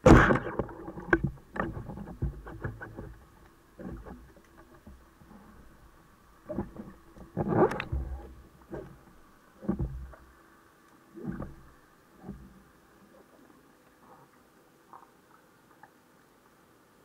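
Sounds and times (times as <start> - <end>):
underwater whooshing thumps: 6.5 - 10.2.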